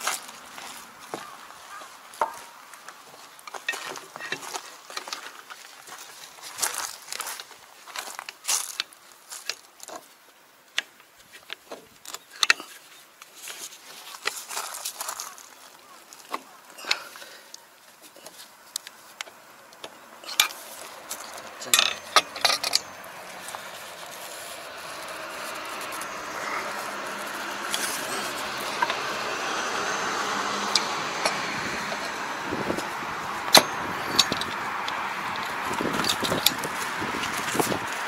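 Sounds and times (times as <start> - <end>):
metal tools clinking on metal: 20.2 - 29.9, 30.6 - 37.7.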